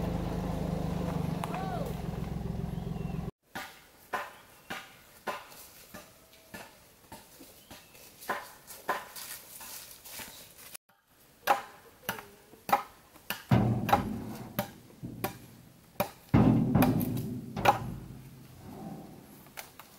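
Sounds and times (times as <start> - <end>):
truck engine running: 0.0 - 3.3
sharp wooden knocks: 12.7 - 18.3.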